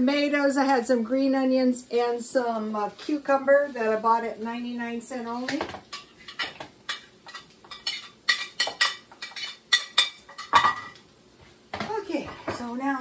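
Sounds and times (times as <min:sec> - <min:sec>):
dishes and utensils clattering: 0:05.5 - 0:11.0.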